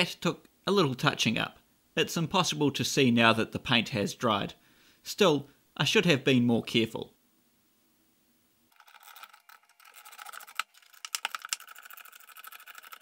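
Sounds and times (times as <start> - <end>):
small metal parts clicking: 8.7 - 13.0.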